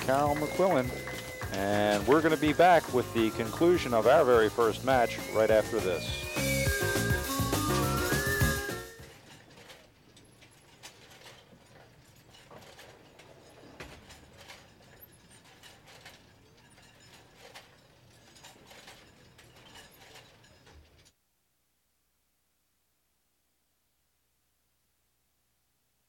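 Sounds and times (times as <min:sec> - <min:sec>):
faint clicking and knocking: 0:09.0 - 0:21.2.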